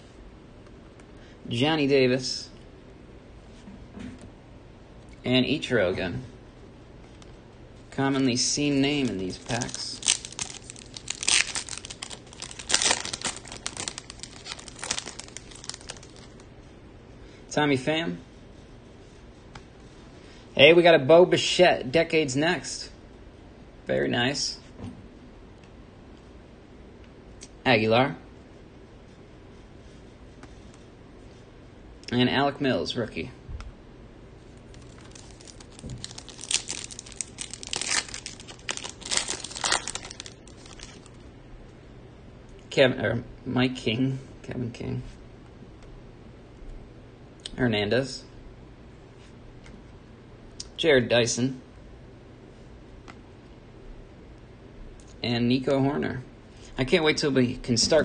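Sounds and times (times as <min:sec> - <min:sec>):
foil wrapper crinkling and tearing: 0:09.0 - 0:16.4, 0:34.6 - 0:41.2.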